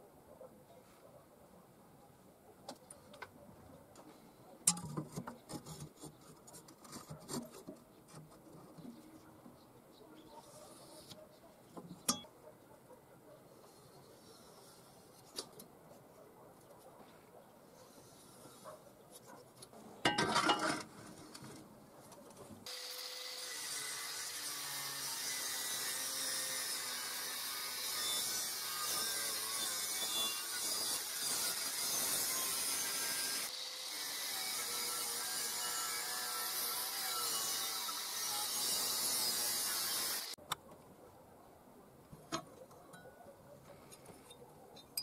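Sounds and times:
angle grinder cutting steel: 22.7 - 40.4.

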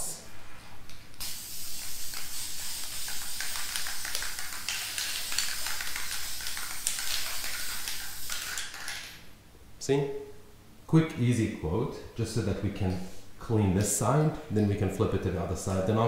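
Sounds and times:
spray paint can hissing: 1.2 - 9.2.

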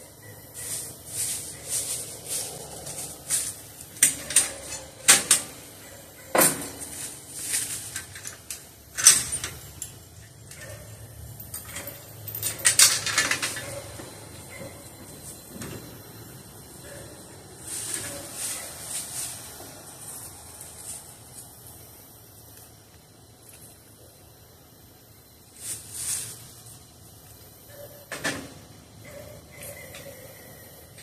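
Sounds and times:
trailer hitch metal clanks and rattles: 0.5 - 20.8.

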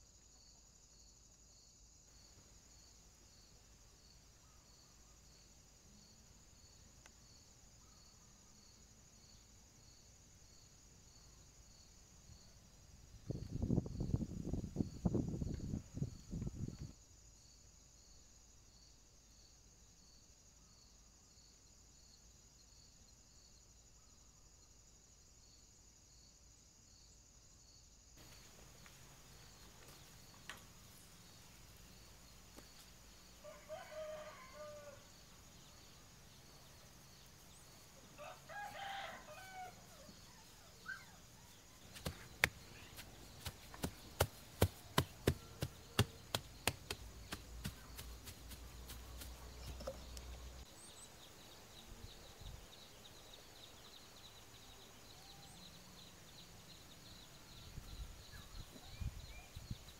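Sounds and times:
insects buzzing: 0.0 - 59.9
rooster crowing: 33.4 - 35.2, 38.2 - 40.2
sharp taps: 43.4 - 50.0.

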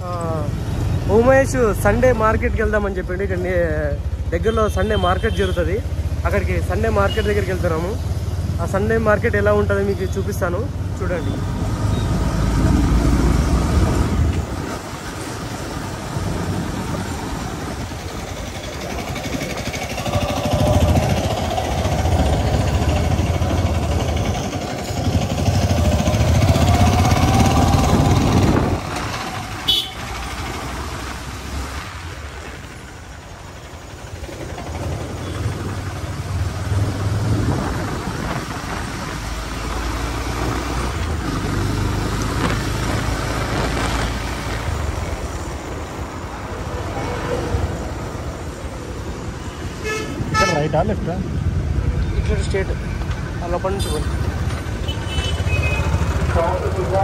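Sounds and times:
rising engine whine: 17.6 - 29.4
vehicle engine running: 17.6 - 30.8.

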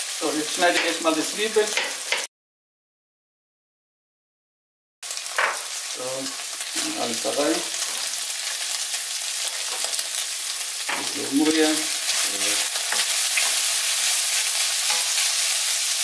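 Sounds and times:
beef and onion sizzling in pan: 0.0 - 2.3, 5.0 - 16.0
spoon stirring and scraping: 10.9 - 15.5.

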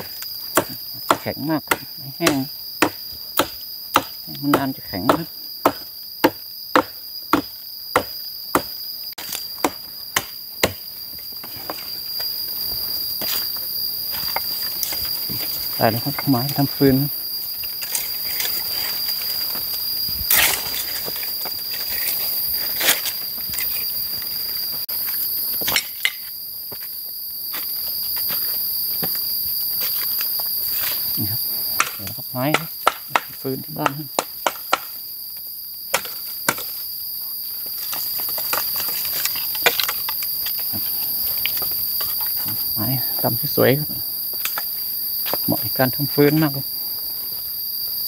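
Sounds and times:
chopping into dry wood: 0.0 - 11.8, 31.8 - 35.0, 35.9 - 36.8
insects buzzing: 0.0 - 48.0.

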